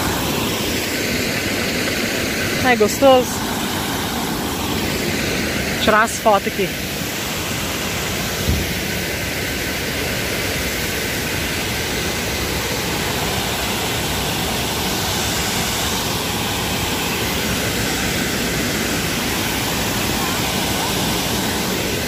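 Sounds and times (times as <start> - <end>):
small waterfall rushing: 0.0 - 22.0
brief thump: 8.4 - 8.8.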